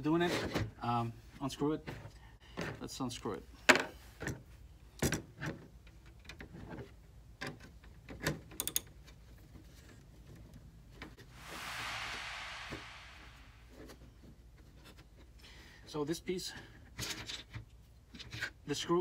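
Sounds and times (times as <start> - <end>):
short hiss: 11.4 - 13.8.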